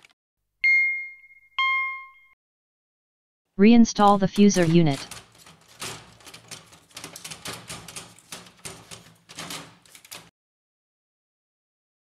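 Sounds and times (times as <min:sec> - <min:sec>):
plastic clicks and rattles: 0:05.0 - 0:10.3.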